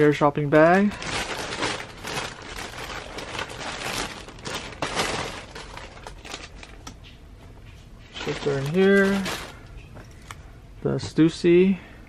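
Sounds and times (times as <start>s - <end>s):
plastic bag crinkling: 0.0s - 7.1s, 8.1s - 10.4s.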